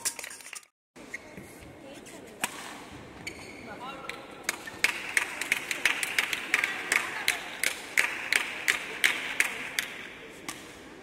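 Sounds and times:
people clapping: 4.8 - 10.1.

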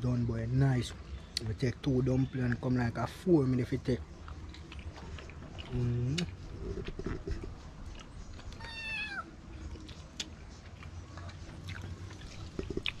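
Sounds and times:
cat meowing: 8.5 - 9.3.

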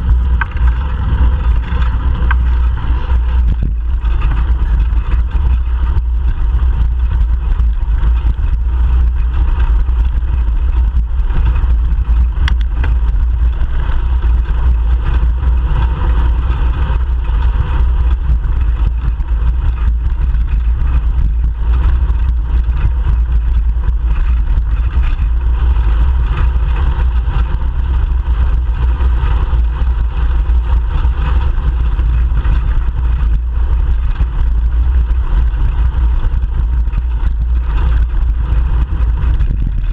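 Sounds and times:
road rumble: 0.0 - 39.9
traffic noise: 0.0 - 39.9
wind on microphone: 0.0 - 39.9.

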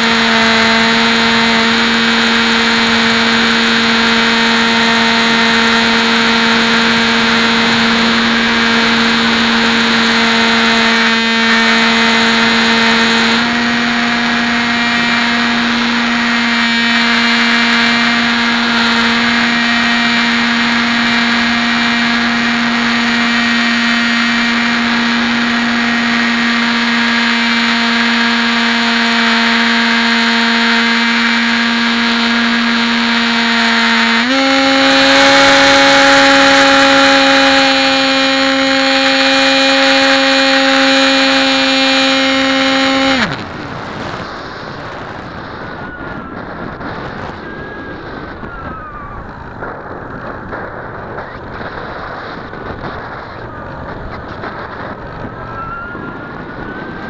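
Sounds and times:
model plane motor buzzing: 0.0 - 43.5.

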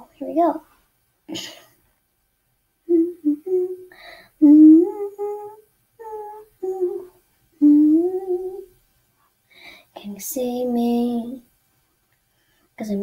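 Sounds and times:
girl humming a melody: 2.8 - 8.8.

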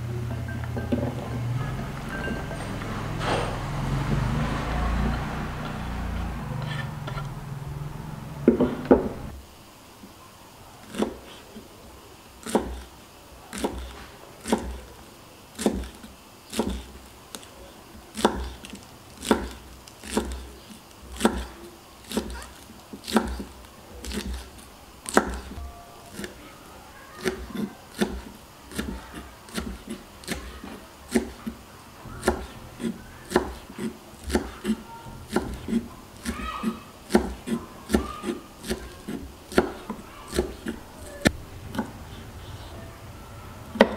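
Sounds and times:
knife chopping on wooden board: 8.4 - 9.3, 10.9 - 11.4, 12.4 - 12.9, 13.5 - 14.9, 15.6 - 17.5, 18.1 - 26.4, 27.2 - 42.0.

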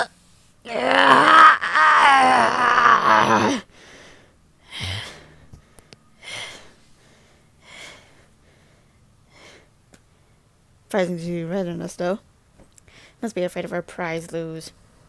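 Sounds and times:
breathy gasps: 3.6 - 9.7.

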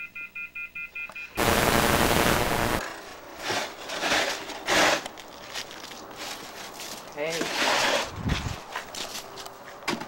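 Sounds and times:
snow shovel scraping concrete: 2.8 - 5.1, 7.2 - 8.4.

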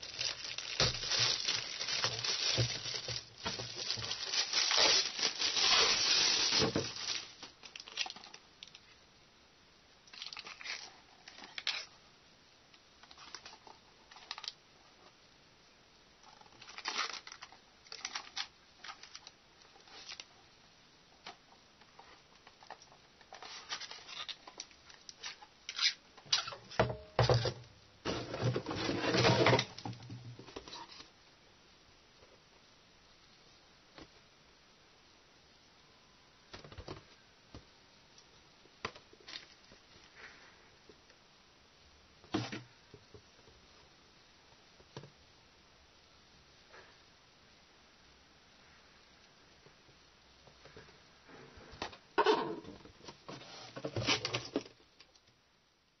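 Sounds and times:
plastic bag crinkling: 0.0 - 8.8, 16.3 - 20.3.

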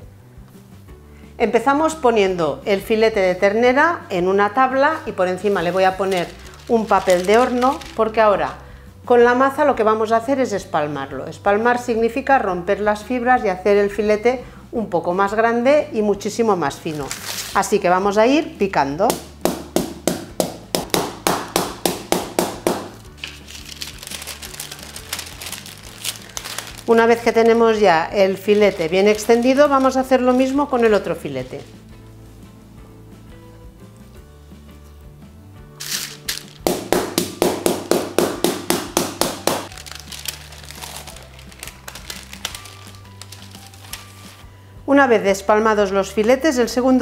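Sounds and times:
baking paper crinkling: 5.2 - 8.6, 16.8 - 17.8, 22.7 - 31.9, 35.8 - 36.9, 39.4 - 44.5
wooden mallet pounding meat: 19.1 - 23.1, 36.6 - 39.7.

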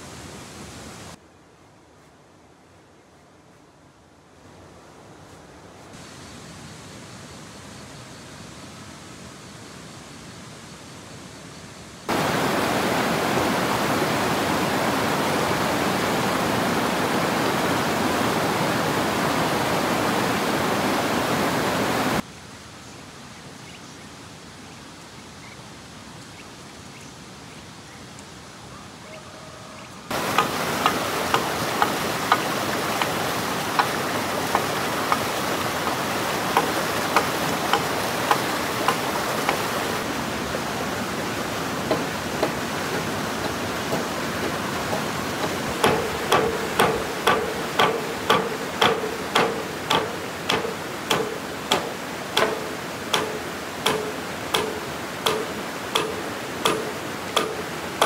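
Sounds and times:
steady hiss: 0.0 - 28.8, 30.0 - 58.0
hand tool striking wood: 30.1 - 39.9, 41.9 - 58.0.

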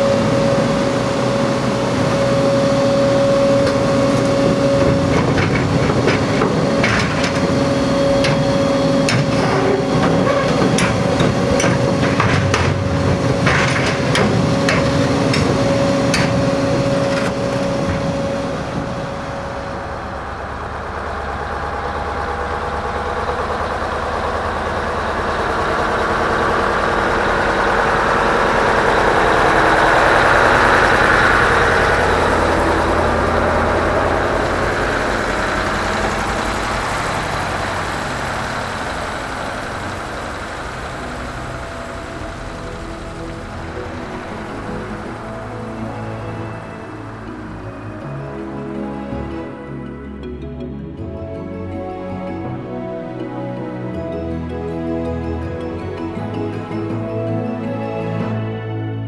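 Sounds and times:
diesel truck passing: 0.0 - 59.0
sharp knocks and clicks: 4.8 - 18.0.

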